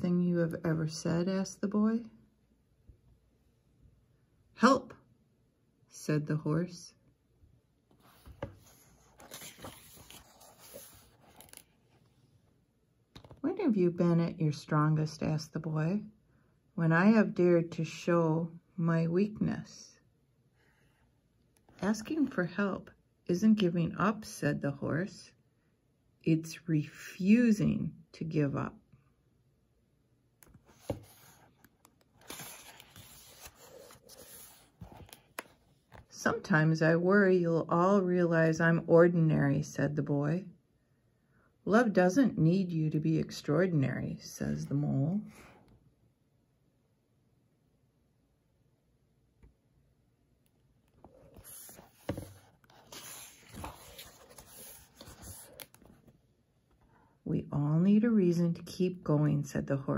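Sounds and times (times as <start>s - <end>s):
book page turning: 7.9s - 12.2s, 30.4s - 36.1s, 50.9s - 56.2s.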